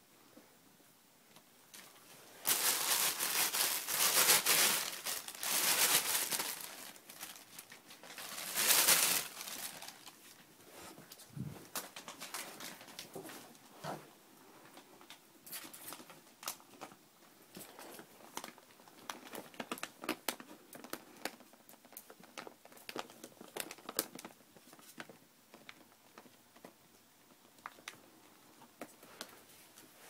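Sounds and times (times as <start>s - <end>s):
blankets rustling: 1.8s - 13.4s.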